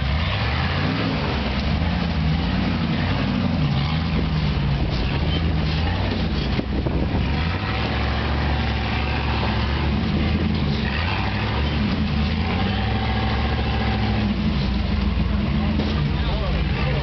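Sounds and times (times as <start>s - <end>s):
buggy engine revving: 0.0s - 17.0s.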